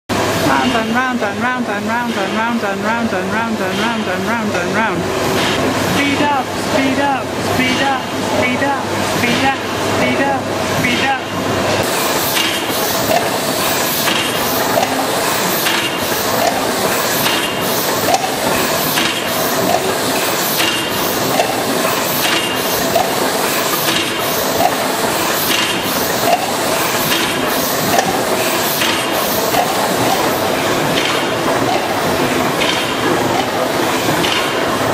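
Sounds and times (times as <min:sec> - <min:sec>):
leaking steam hiss: 0:11.8 - 0:30.8
steam engine valve gear knocking: 0:11.8 - 0:34.7.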